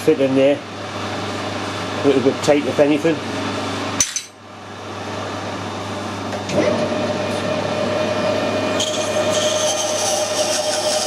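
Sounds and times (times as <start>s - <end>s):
steady machine whine: 0.0s - 11.0s
lathe motor running: 5.2s - 11.0s.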